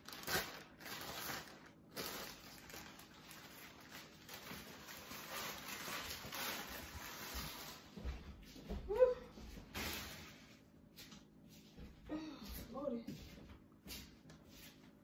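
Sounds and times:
plastic bags rustling: 0:00.0 - 0:08.1, 0:09.6 - 0:10.9
soft footsteps: 0:07.5 - 0:15.0.

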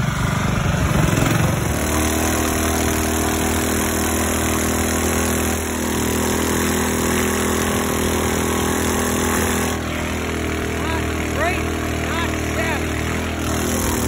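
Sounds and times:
boat engine running: 0:00.0 - 0:14.0.

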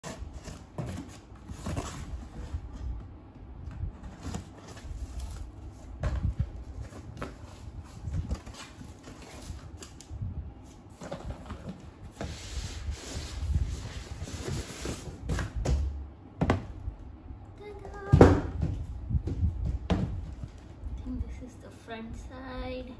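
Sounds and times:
cardboard rustling and scraping: 0:00.0 - 0:03.0, 0:03.6 - 0:10.0, 0:10.6 - 0:15.8.

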